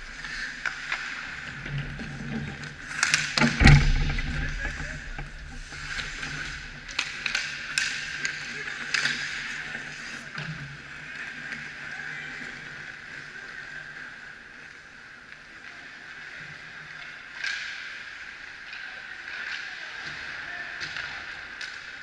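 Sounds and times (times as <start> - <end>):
skates scraping ice: 0.0 - 3.6, 4.4 - 18.4
hockey sticks and puck clacking: 0.1 - 12.2, 16.9 - 22.0
heavy thump: 3.4 - 6.8.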